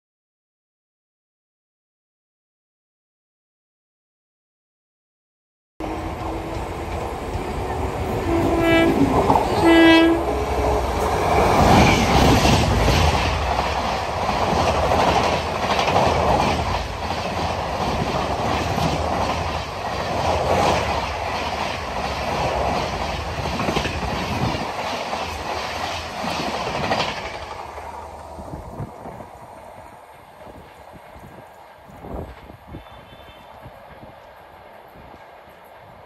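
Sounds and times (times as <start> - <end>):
train wheels clattering on rails: 6.0 - 29.3
locomotive horn blasts: 8.1 - 10.5, 32.7 - 33.7.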